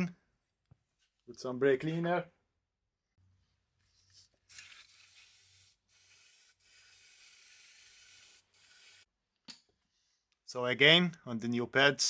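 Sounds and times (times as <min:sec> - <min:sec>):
aerosol spray hissing: 0:05.1 - 0:09.1.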